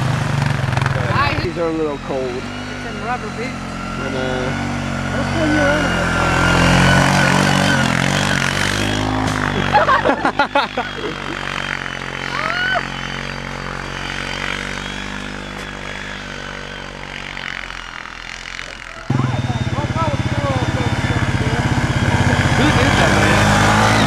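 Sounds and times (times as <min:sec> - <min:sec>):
quad engine passing: 0:00.0 - 0:24.0
person's voice: 0:19.0 - 0:23.6.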